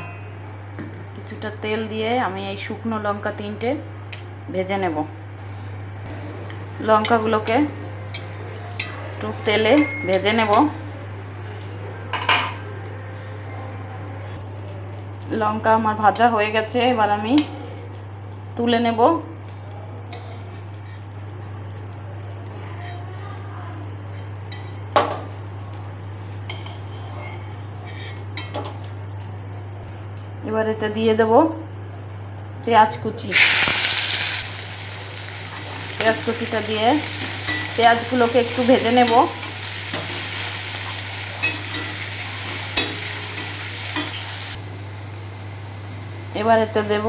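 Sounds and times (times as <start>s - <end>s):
metal spatula scraping a metal pan: 20.2s - 21.1s
onions sizzling in hot oil: 33.3s - 44.6s.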